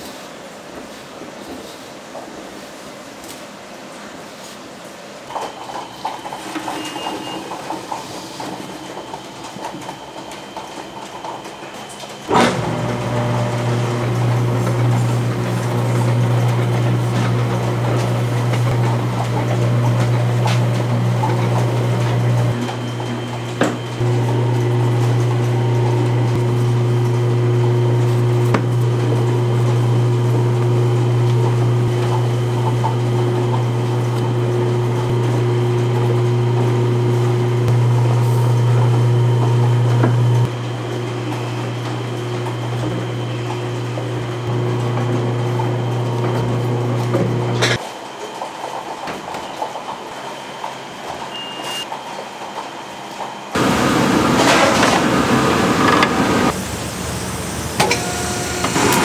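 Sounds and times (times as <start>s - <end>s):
electric motor humming: 12.4s - 47.8s.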